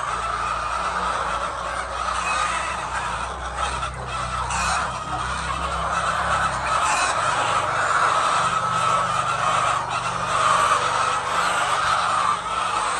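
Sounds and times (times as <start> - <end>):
chickens clucking and squawking: 0.0 - 12.9.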